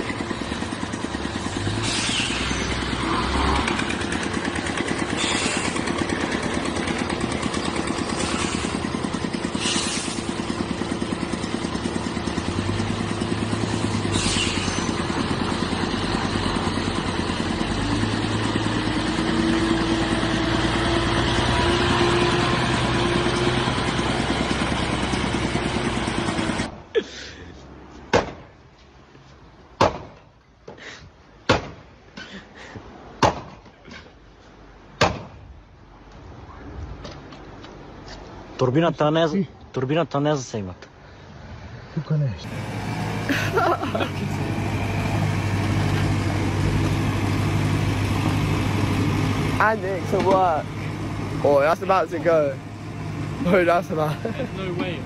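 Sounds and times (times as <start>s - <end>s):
tractor engine running: 0.0s - 26.7s, 42.4s - 55.0s
truck engine running: 0.0s - 26.7s, 42.4s - 55.0s
sharp knocks: 28.1s - 28.5s, 29.8s - 30.3s, 31.5s - 31.8s, 33.2s - 33.7s, 35.0s - 35.4s.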